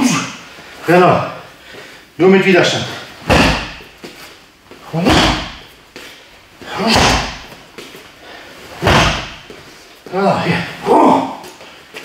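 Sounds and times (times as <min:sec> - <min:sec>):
dull kick thuds: 0:03.3 - 0:04.1, 0:05.0 - 0:05.7, 0:08.8 - 0:09.6.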